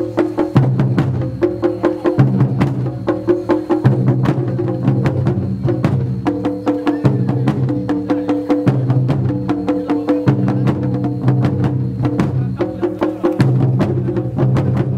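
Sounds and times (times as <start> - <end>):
barrel drums striking fast: 0.0 - 14.9.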